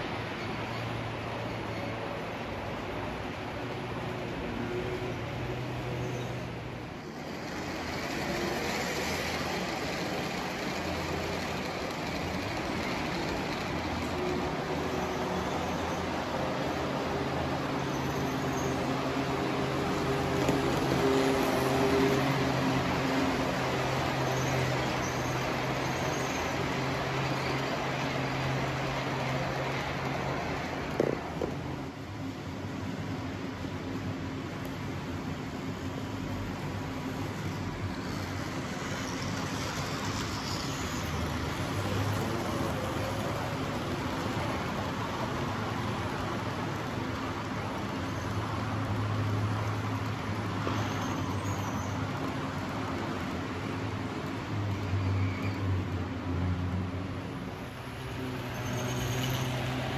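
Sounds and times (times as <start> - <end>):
model train wheels rolling: 5.6 - 59.9
model train motor hum: 7.1 - 15.8.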